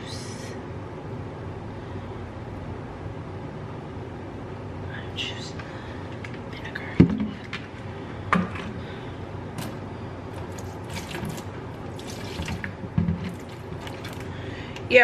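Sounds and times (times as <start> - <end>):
liquid pouring and splashing: 10.4 - 14.4.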